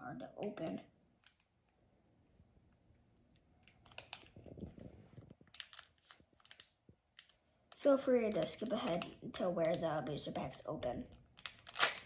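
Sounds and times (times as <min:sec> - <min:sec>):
foil wrapper crinkling: 0:03.7 - 0:09.9, 0:11.1 - 0:12.0.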